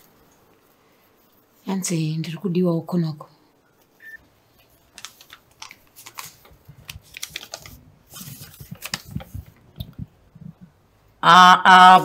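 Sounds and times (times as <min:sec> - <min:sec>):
paper rustling: 0:04.5 - 0:09.8.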